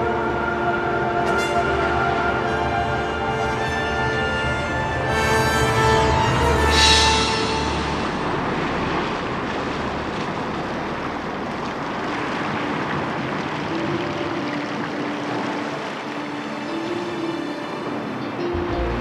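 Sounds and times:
strong wind: 0.0s - 19.0s
surf rushing: 0.0s - 19.0s.

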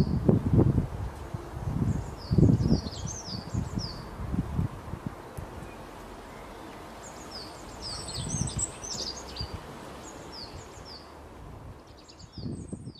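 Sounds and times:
small birds chirping: 1.7s - 4.2s, 5.4s - 12.9s.

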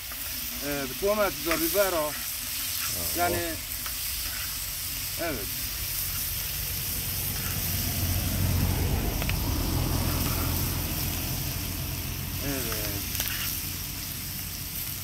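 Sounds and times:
vegetables sizzling in frying pan: 0.0s - 15.0s
low rumble: 5.5s - 12.4s.

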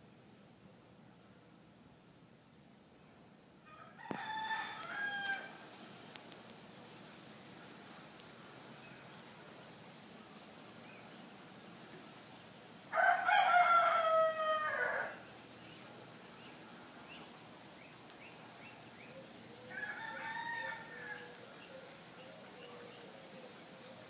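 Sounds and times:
rooster crowing: 3.7s - 5.6s, 12.9s - 15.2s, 19.6s - 21.8s.

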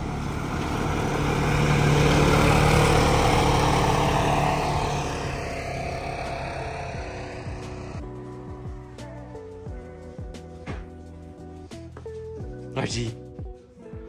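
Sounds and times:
tracked vehicle driving past: 0.0s - 9.4s.

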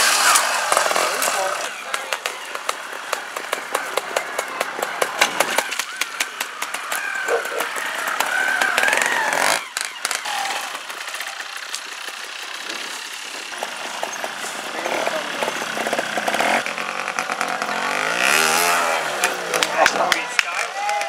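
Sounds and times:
motorcycle engines with throttle blips: 0.0s - 21.0s.

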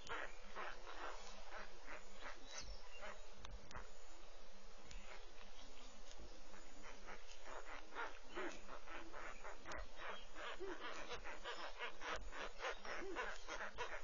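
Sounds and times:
pulsing chorus of calling animals: 6.9s - 14.0s.

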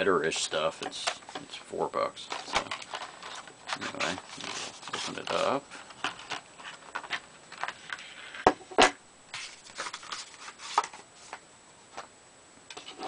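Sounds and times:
plastic blister pack crinkling: 2.2s - 8.0s.

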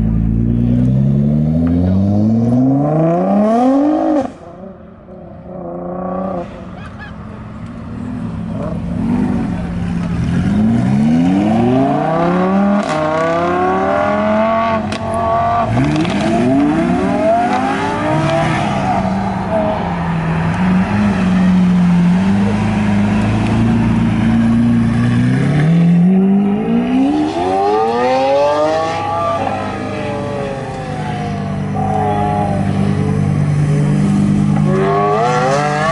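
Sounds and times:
sports car engine accelerating: 0.0s - 6.6s, 7.6s - 35.9s.

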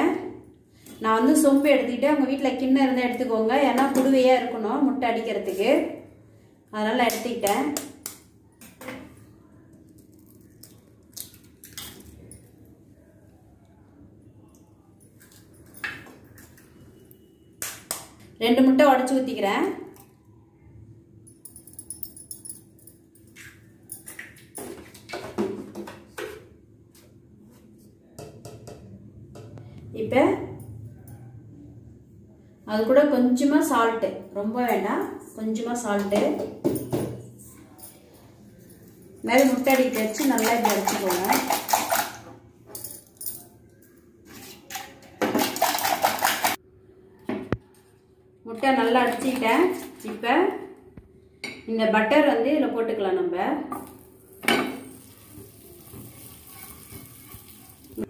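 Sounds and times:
whisk clattering in steel tumbler: 39.4s - 42.2s.

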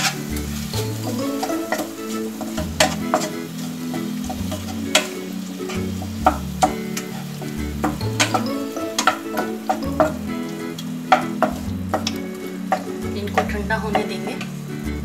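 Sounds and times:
spatula scraping pan: 0.0s - 10.2s
background music with bass line: 0.0s - 15.0s
food sizzling: 0.0s - 15.0s.

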